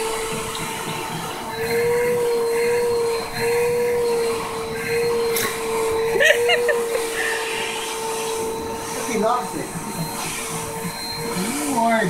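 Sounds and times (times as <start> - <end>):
vacuum cleaner running: 0.0 - 12.0.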